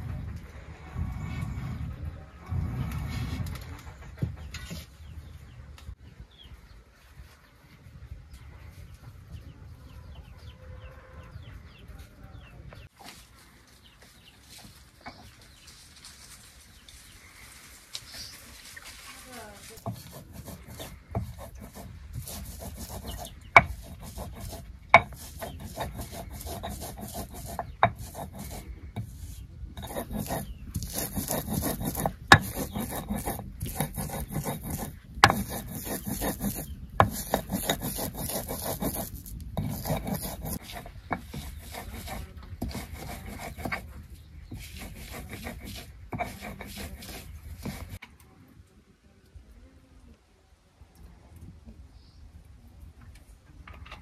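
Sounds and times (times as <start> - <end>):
rasping scraping strokes: 17.2 - 48.0.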